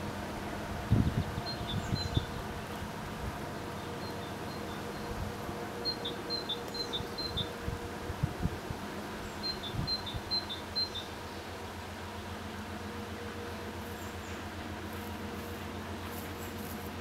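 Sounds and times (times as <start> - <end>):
freight train rumble: 0.0 - 17.0
songbird singing: 1.0 - 2.8, 3.4 - 7.6, 9.0 - 11.8, 12.6 - 17.0.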